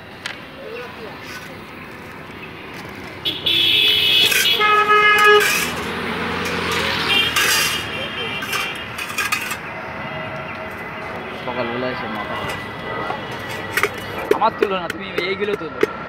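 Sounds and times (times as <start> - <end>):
voices chattering: 0.0 - 16.0
vehicle horns honking: 3.2 - 14.2.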